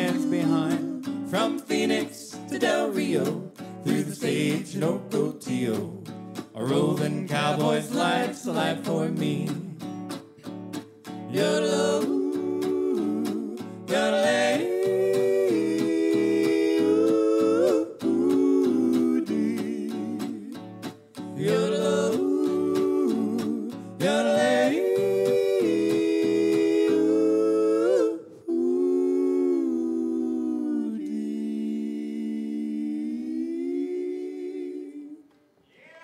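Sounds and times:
voices singing in harmony: 0.0s - 10.2s, 11.1s - 36.0s
strummed rhythm guitar: 0.0s - 27.4s.

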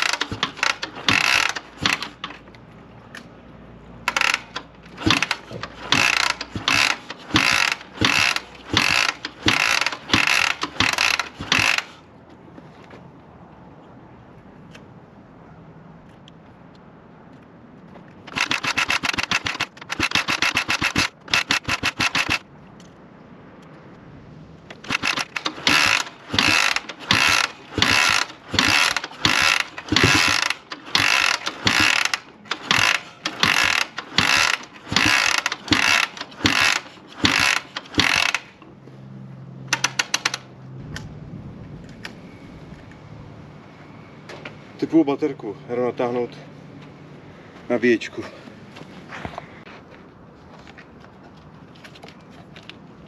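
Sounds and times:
motorcycle kick-starter clicking: 0.0s - 3.3s, 4.0s - 13.0s, 17.9s - 23.0s, 24.7s - 38.8s, 39.6s - 41.1s.

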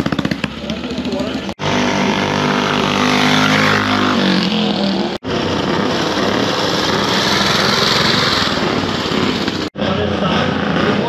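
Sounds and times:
motorcycle engine passing by: 0.0s - 11.0s
motorcycle engine running: 0.0s - 11.0s.

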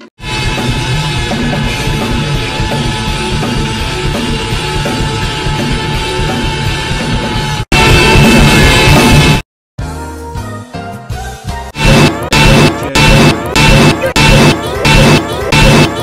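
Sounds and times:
background music: 0.0s - 16.0s
steady drum beat: 0.6s - 9.3s.

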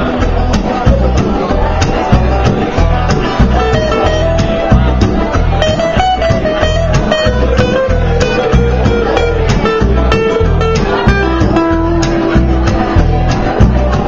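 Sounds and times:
banjo picking: 0.0s - 14.0s
heavy bass beat: 0.0s - 14.0s
strummed acoustic guitar: 0.0s - 14.0s.

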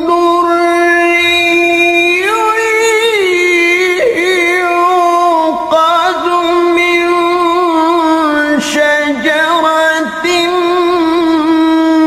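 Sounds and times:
man reciting melodically: 0.0s - 12.0s.

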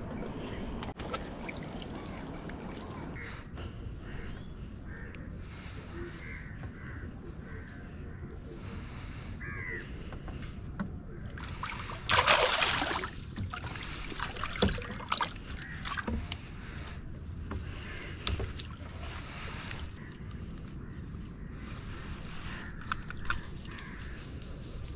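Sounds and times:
landing net splashing and knocking: 11.5s - 16.3s
loud splash in water: 12.0s - 13.2s.

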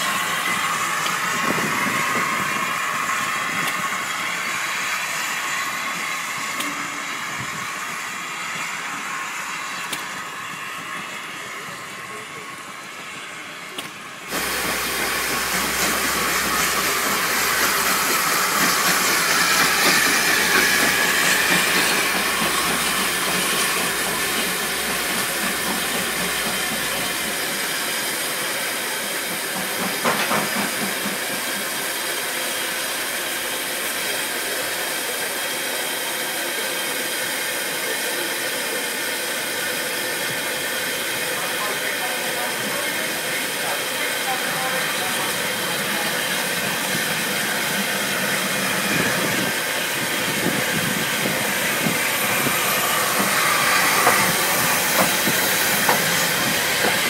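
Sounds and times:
steam locomotive hissing steam: 0.0s - 57.0s.

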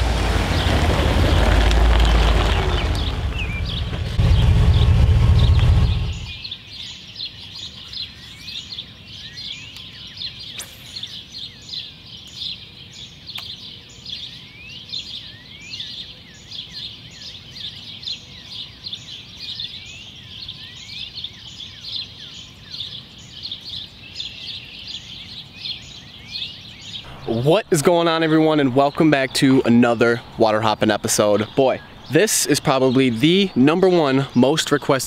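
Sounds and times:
many birds chirping: 0.0s - 35.0s
bird whistles: 3.0s - 3.9s.

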